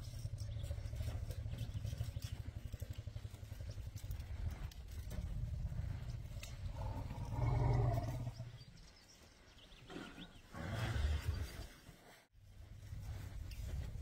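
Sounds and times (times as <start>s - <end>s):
elephants rumbling: 0.0s - 14.0s.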